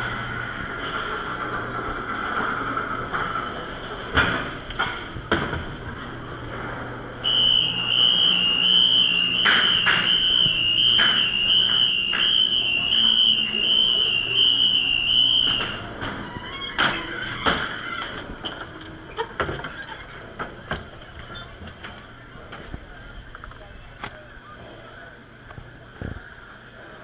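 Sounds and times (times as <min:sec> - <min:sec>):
high warbling electronic tone: 0:07.3 - 0:15.9.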